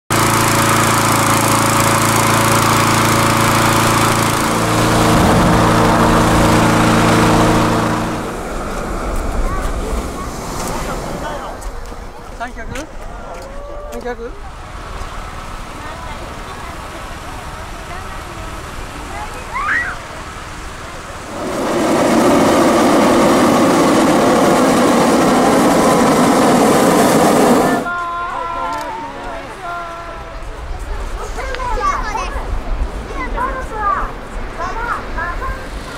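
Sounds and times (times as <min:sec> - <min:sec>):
propane burner roaring: 0:00.1 - 0:12.2, 0:14.4 - 0:29.8
petrol inflator fan running: 0:00.1 - 0:12.6, 0:14.4 - 0:30.5.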